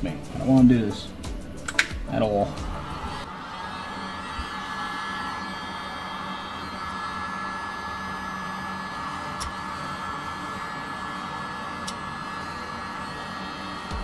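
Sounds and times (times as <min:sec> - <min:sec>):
heat gun fan whine: 0:03.9 - 0:14.0.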